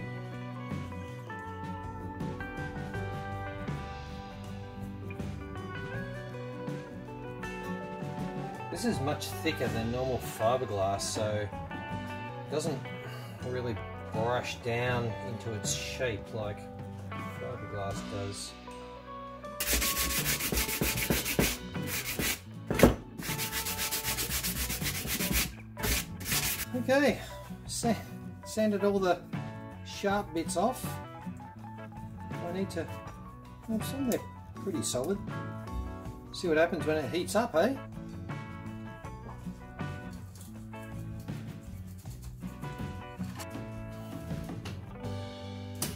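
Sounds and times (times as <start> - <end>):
background music with held notes: 0.0 - 45.9
sanding block rasping: 19.6 - 22.4, 23.2 - 26.8.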